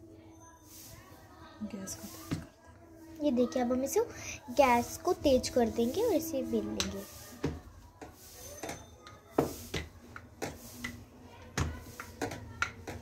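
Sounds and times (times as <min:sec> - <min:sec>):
rolling pin rubbing on dough: 0:01.9 - 0:02.4, 0:03.0 - 0:13.0
light knocks of rolling pin: 0:06.8 - 0:13.0.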